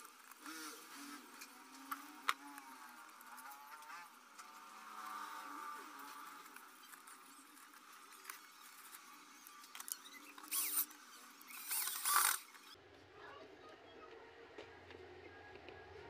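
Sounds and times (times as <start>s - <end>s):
cordless drill running: 7.8s - 12.7s.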